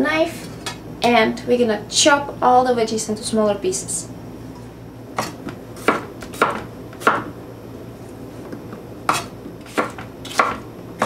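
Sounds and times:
knife chopping on wooden board: 5.2 - 7.3, 9.1 - 10.6.

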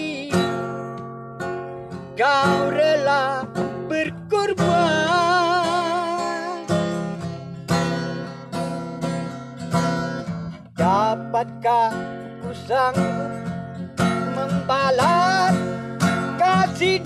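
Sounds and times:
elderly man singing a hymn: 0.0 - 0.5, 2.2 - 6.7, 16.4 - 17.0
acoustic guitar strumming: 0.0 - 17.0.

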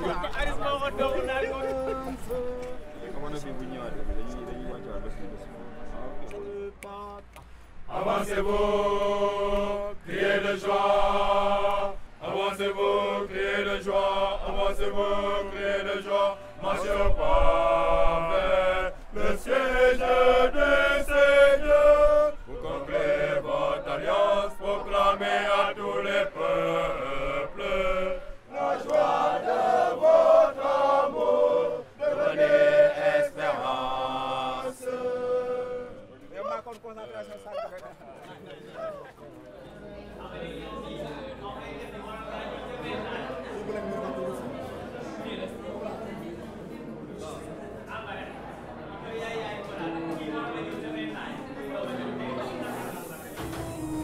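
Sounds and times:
church choir singing: 7.9 - 36.2.

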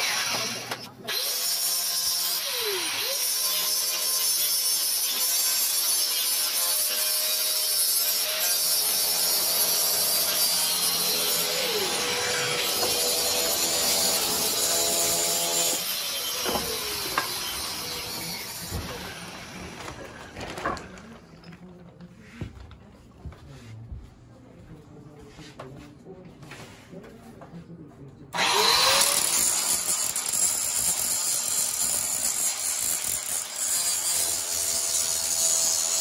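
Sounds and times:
angle grinder grinding metal: 0.0 - 19.9, 28.4 - 36.0.

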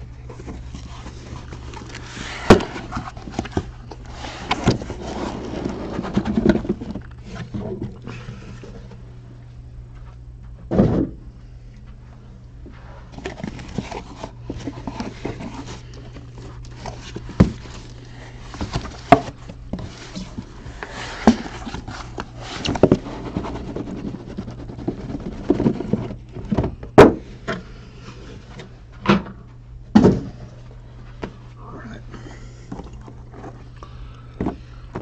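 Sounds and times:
cardboard boxes rustling and scraping: 0.0 - 9.1, 11.9 - 31.6, 32.7 - 35.0
steady low hum: 0.0 - 35.0
knocks and thuds: 10.6 - 11.2, 24.9 - 27.3, 29.0 - 30.4.

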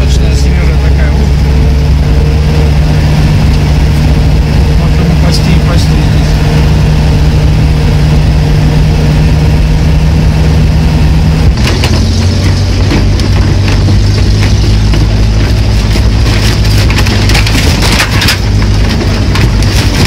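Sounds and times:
vehicle engine running: 0.0 - 20.0
vehicle body rattling and knocking: 11.4 - 20.0.

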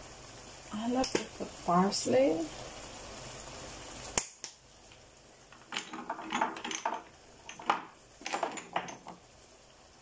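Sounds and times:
faint hiss: 0.0 - 10.0
small dry crackles and taps: 4.1 - 9.2.

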